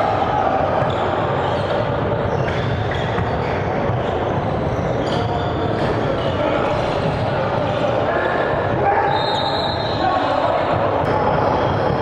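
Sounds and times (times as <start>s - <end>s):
gymnasium din: 0.0s - 12.0s
sneakers squeaking on hardwood: 0.8s - 7.2s.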